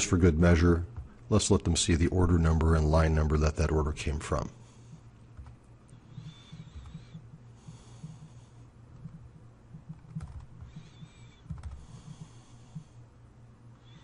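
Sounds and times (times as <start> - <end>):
low steady hum: 0.0 - 14.0
soft breaths: 4.5 - 14.0
computer mouse clicks: 5.4 - 7.3, 9.0 - 12.9.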